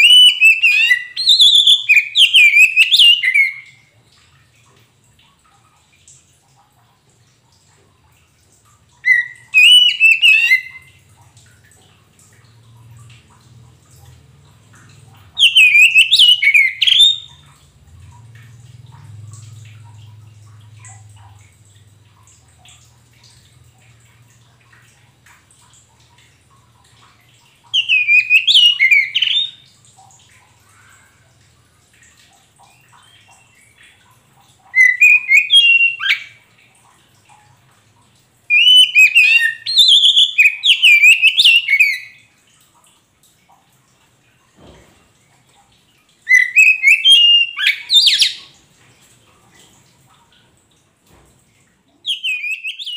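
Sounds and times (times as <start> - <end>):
songbird singing: 9.0 - 10.9, 15.1 - 17.5, 27.8 - 29.6, 34.8 - 36.4, 38.5 - 42.1, 46.3 - 48.5, 52.0 - 52.9.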